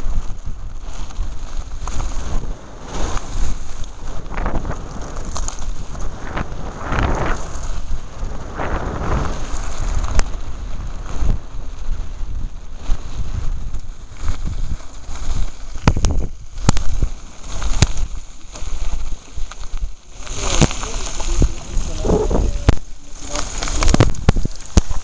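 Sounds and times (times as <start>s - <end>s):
bike rolling over gravel: 0.0s - 25.0s
wind buffeting microphone: 0.0s - 25.0s
clicks and knocks from bike: 4.7s - 6.1s, 13.7s - 22.0s, 22.6s - 25.0s.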